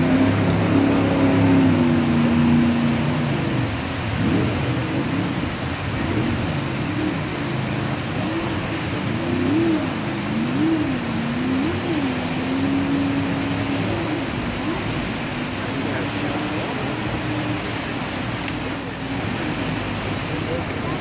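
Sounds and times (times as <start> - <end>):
jet boat engine running hard: 0.0 - 21.0
rush of rapids: 0.0 - 21.0.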